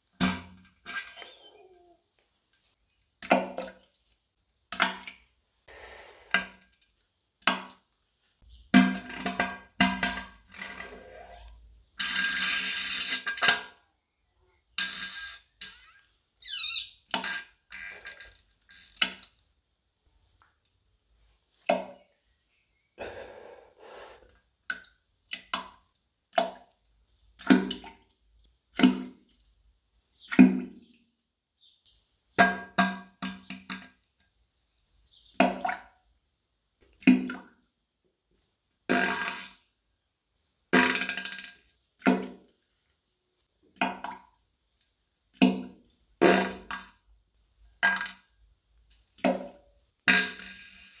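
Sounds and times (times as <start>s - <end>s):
turds plopping into toilet water: 3.2s - 3.9s, 4.7s - 5.3s, 24.6s - 28.1s, 28.7s - 29.5s, 35.4s - 36.0s, 36.8s - 37.6s, 40.8s - 42.6s, 43.7s - 44.5s, 45.3s - 47.0s, 49.1s - 50.6s
comic fart sounds: 38.9s - 39.5s, 46.2s - 46.7s.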